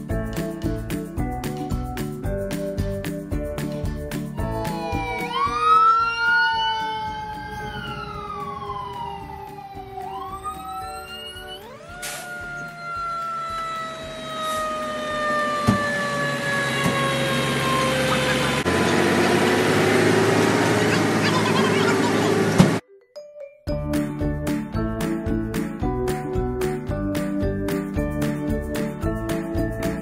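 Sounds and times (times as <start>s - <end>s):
fire truck siren wailing: 4.4s - 22.8s.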